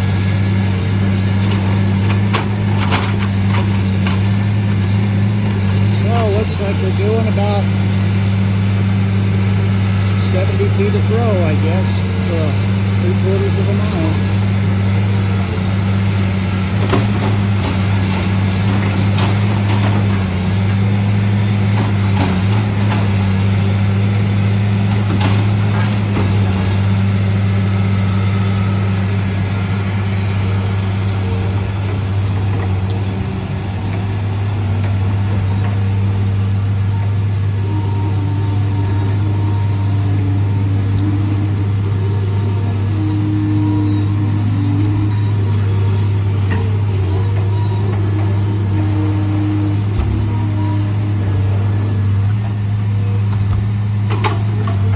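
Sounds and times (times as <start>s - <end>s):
diesel engine running: 0.0s - 54.9s
knocks and clanks of machine: 1.4s - 4.5s, 16.7s - 23.5s, 24.8s - 27.4s, 53.3s - 54.9s.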